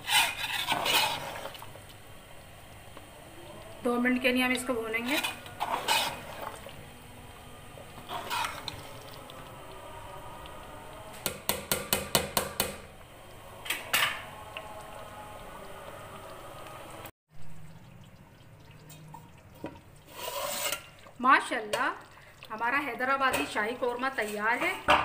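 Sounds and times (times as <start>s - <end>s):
metal spoon scraping steel pot: 0.0s - 1.4s, 4.9s - 6.6s, 8.0s - 9.1s, 20.1s - 21.0s
curry bubbling and frying: 0.0s - 25.0s
low hum: 6.4s - 11.2s.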